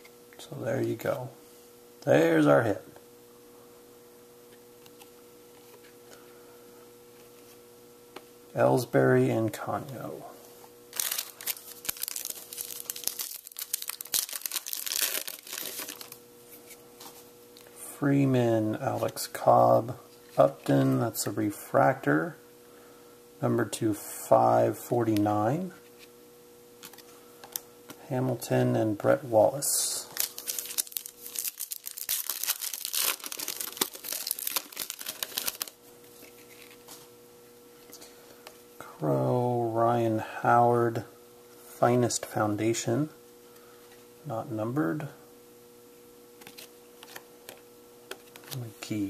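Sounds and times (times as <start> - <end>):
foil wrapper crinkling and tearing: 10.9 - 16.2, 30.1 - 35.8.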